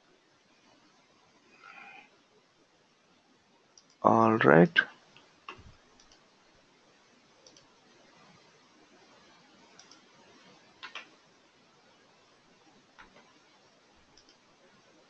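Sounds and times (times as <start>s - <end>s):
computer mouse clicking: 3.8s - 4.0s, 5.5s - 6.2s, 7.4s - 7.7s, 9.7s - 10.1s, 10.8s - 11.1s, 14.1s - 14.4s.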